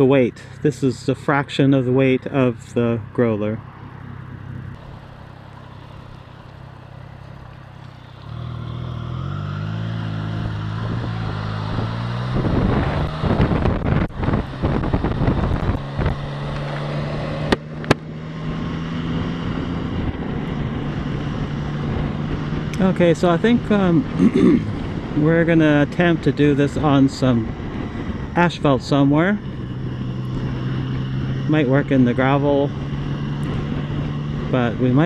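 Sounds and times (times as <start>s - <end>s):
wind rush on microphone: 3.6s - 4.8s, 9.7s - 35.0s
motorcycle engine accelerating: 3.7s - 35.0s.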